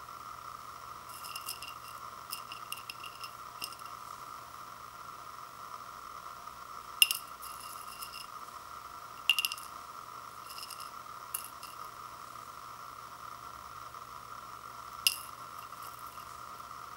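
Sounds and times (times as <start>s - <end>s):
food pieces clinking on ceramic bowl: 1.1s - 3.9s, 9.2s - 9.7s, 10.5s - 11.8s, 15.1s - 16.2s.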